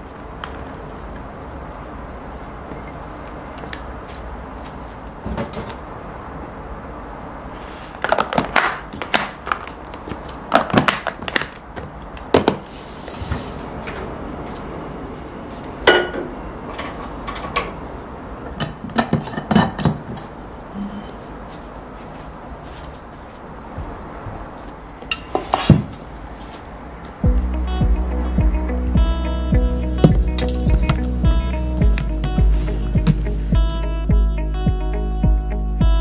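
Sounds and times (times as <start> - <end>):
plastic containers clicking and knocking: 8.0 - 12.6.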